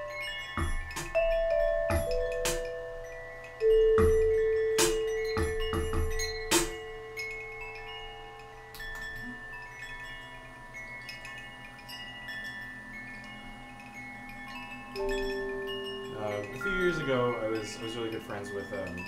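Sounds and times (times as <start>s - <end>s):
sharp percussion hits: 0.0s - 7.3s, 15.0s - 18.0s
metallic chime tones ringing: 0.0s - 19.0s
low held tone: 15.0s - 19.0s.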